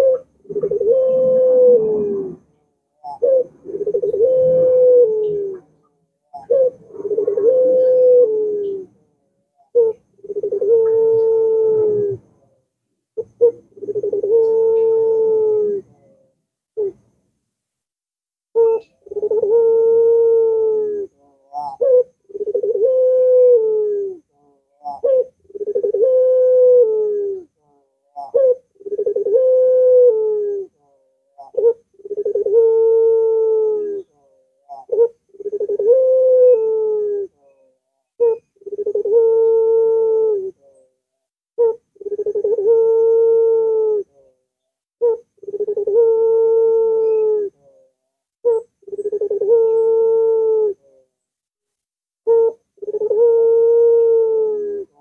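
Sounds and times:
dove cooing: 0:00.0 - 0:09.0, 0:09.6 - 0:12.6, 0:13.2 - 0:17.0, 0:18.6 - 0:41.0, 0:41.6 - 0:44.4, 0:45.0 - 0:51.1, 0:52.2 - 0:55.0.

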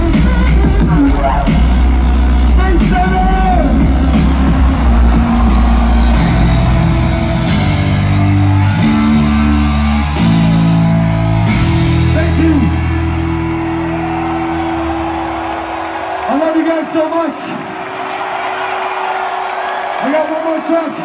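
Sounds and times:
heavy bass chords: 0:00.0 - 0:15.0
loud live music: 0:00.0 - 0:17.0.

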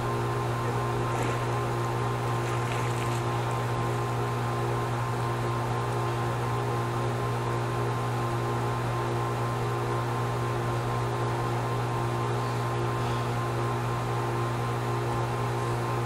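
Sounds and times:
machine hum: 0:00.0 - 0:16.0.

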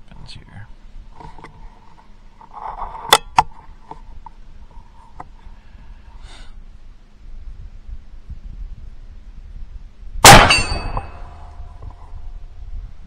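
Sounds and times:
air rifle shot: 0:10.2 - 0:11.4
slug striking target: 0:10.2 - 0:11.4.

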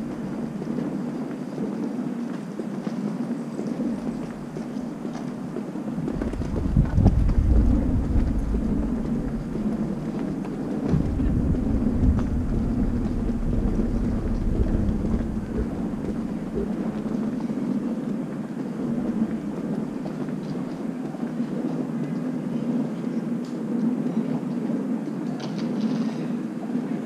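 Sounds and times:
low traffic hum: 0:03.7 - 0:21.7
deep traffic rumble: 0:03.8 - 0:21.3.

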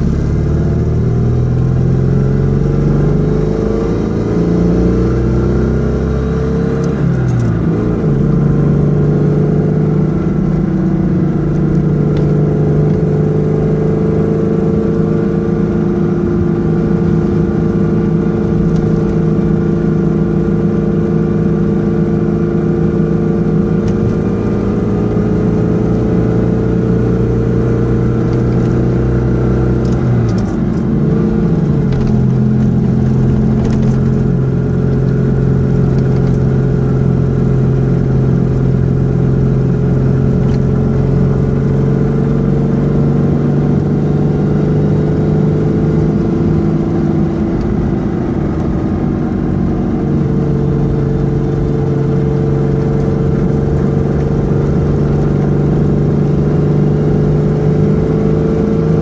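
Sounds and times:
car engine through broken exhaust: 0:15.2 - 0:59.0.

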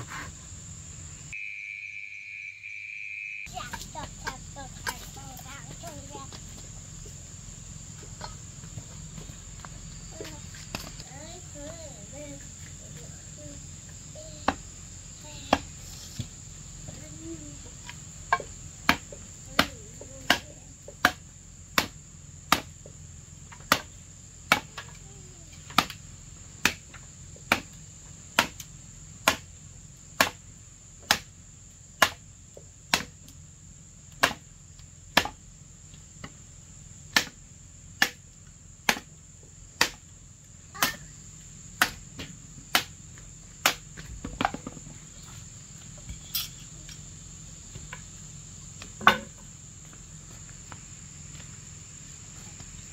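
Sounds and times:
high insect buzz: 0:00.0 - 0:52.9
machete chopping wooden pole: 0:18.3 - 0:22.8, 0:23.5 - 0:25.0, 0:25.7 - 0:26.0, 0:26.6 - 0:27.8, 0:28.4 - 0:29.5, 0:30.1 - 0:30.4, 0:31.0 - 0:31.4, 0:32.0 - 0:32.2, 0:32.9 - 0:33.3, 0:34.1 - 0:34.5, 0:35.1 - 0:35.4, 0:37.1 - 0:37.4, 0:38.0 - 0:38.2, 0:38.8 - 0:40.1, 0:40.7 - 0:41.1, 0:41.8 - 0:43.0, 0:43.6 - 0:44.8, 0:49.0 - 0:49.4.

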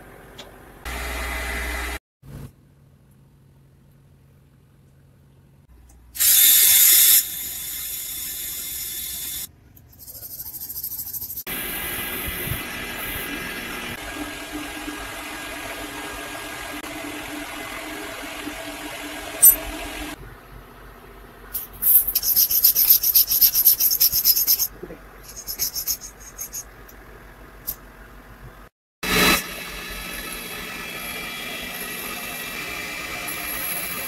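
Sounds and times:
buffing wheel running: 0:11.5 - 0:20.2.

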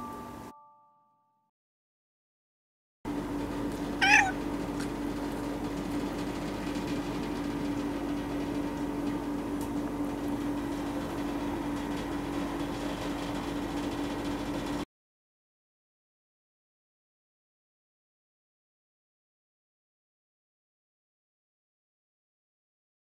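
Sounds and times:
steady low hum: 0:03.1 - 0:14.8
cat meowing: 0:04.0 - 0:04.4.

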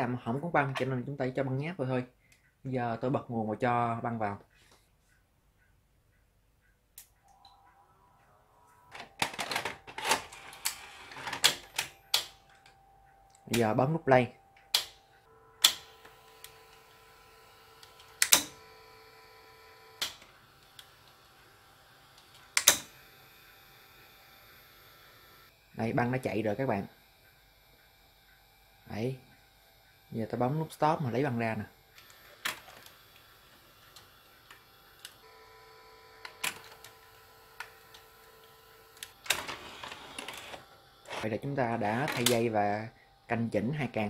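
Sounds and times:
faint motor hum: 0:07.0 - 0:44.0
mechanical clicks and clunks: 0:08.8 - 0:13.8, 0:14.4 - 0:17.0, 0:17.8 - 0:18.8, 0:22.2 - 0:23.0, 0:29.3 - 0:35.3, 0:36.1 - 0:42.8
tape deck clack: 0:15.6 - 0:16.6, 0:17.8 - 0:18.6, 0:36.2 - 0:37.0, 0:39.0 - 0:40.6.

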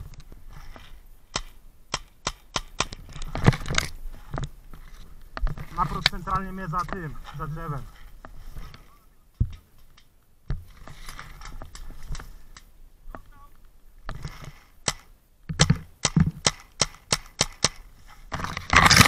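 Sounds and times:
paintball marker shots: 0:01.3 - 0:03.0.

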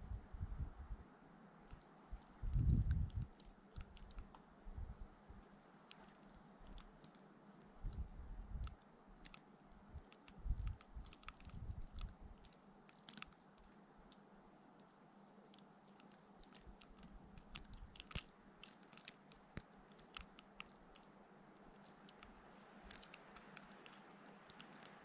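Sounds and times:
wind buffeting microphone: 0:00.0 - 0:01.0, 0:02.1 - 0:03.9, 0:04.7 - 0:05.1, 0:07.8 - 0:08.7, 0:09.9 - 0:12.3.

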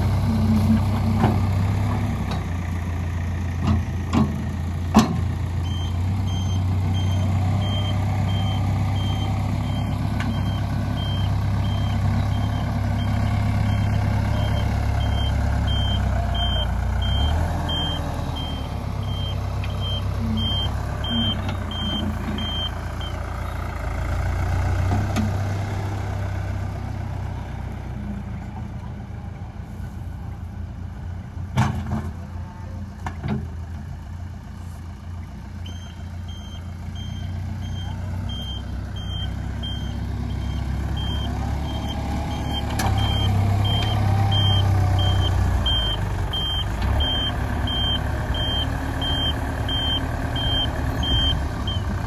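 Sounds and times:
heavy vehicle engine running: 0:00.0 - 0:52.0
reverse warning alarm beeping: 0:05.6 - 0:23.2, 0:35.7 - 0:51.9.

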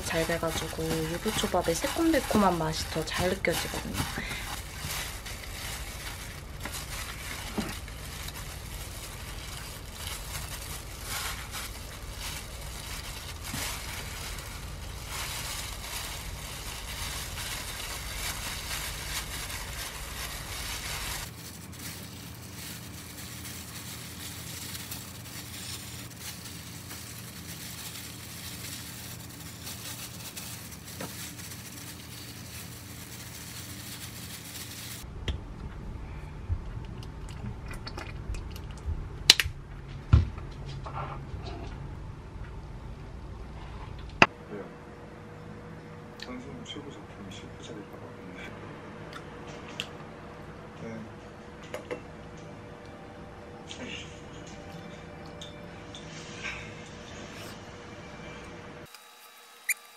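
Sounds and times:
plastic gloves crinkling: 0:00.0 - 0:35.1
low hum: 0:00.0 - 0:47.2.

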